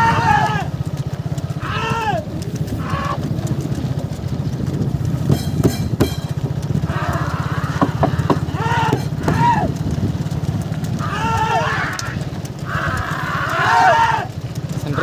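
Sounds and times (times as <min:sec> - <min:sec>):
men yelling: 0:00.0 - 0:00.9, 0:01.5 - 0:03.3, 0:06.8 - 0:09.9, 0:10.9 - 0:15.0
low engine running: 0:00.0 - 0:15.0
sharp knocks: 0:05.3 - 0:06.4, 0:07.7 - 0:09.4.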